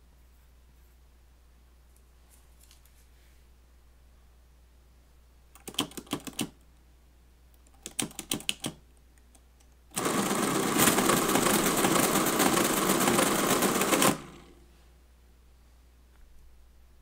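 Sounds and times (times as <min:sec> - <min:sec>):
mechanical calculator clatter: 0:10.0 - 0:14.6.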